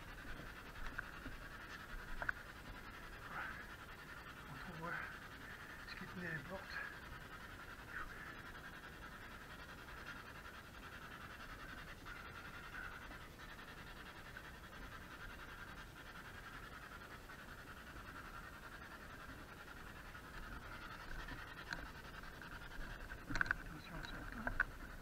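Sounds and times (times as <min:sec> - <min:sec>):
radio static hiss: 0:00.0 - 0:10.4, 0:16.5 - 0:25.0.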